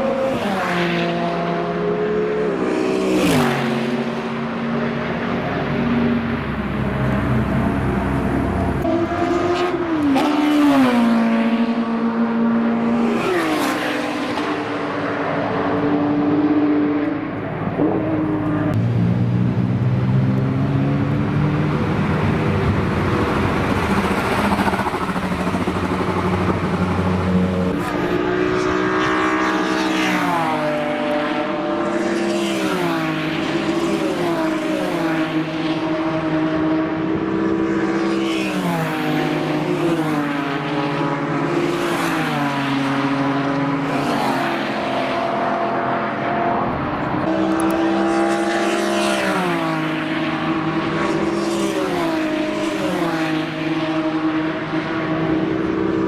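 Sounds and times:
race car accelerating with upshifts: 0:00.0 - 0:56.0
race car engine steady revs: 0:25.0 - 0:32.6, 0:42.7 - 0:56.0.

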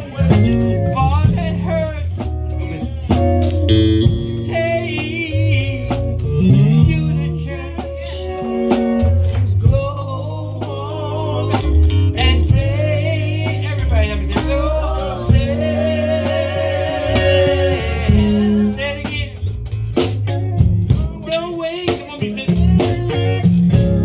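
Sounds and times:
electric bass: 0:00.0 - 0:24.0
electric guitar: 0:00.0 - 0:24.0
person singing: 0:02.6 - 0:19.5.

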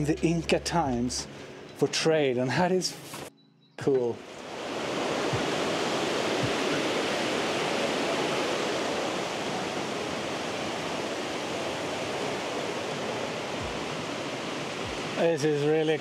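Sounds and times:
river water rushing: 0:04.0 - 0:16.0.

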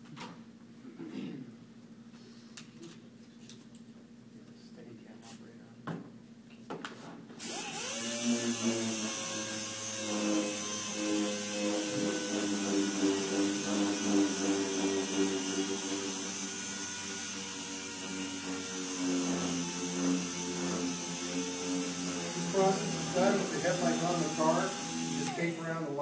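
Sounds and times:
air sander running: 0:07.4 - 0:26.0.

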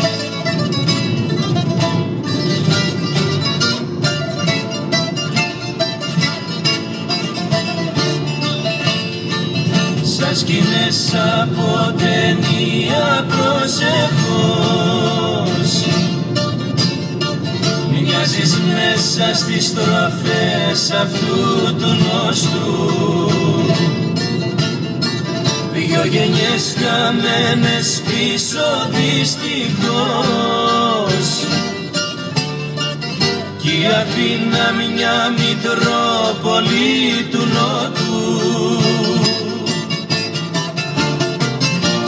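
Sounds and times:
plucked strings: 0:00.0 - 0:42.0
person singing: 0:10.0 - 0:16.2, 0:17.9 - 0:24.2, 0:25.7 - 0:31.8, 0:33.6 - 0:40.0.

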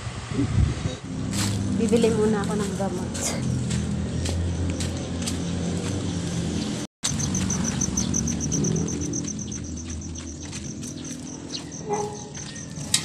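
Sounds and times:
insect chirping in rapid pulses: 0:07.0 - 0:11.9.

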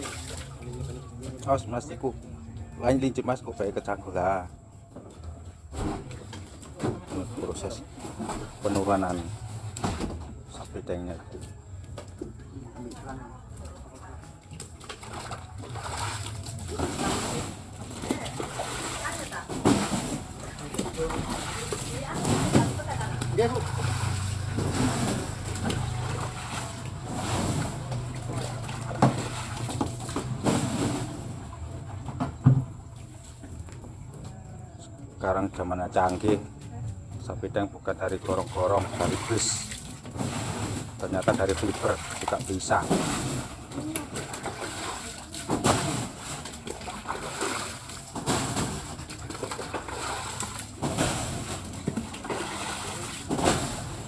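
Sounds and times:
water splashing from garden hose: 0:00.0 - 0:01.4, 0:14.5 - 0:31.2, 0:38.1 - 0:54.0.

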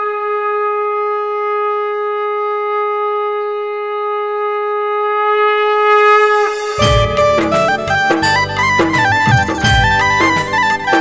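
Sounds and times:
conch shell blown: 0:00.0 - 0:11.0.

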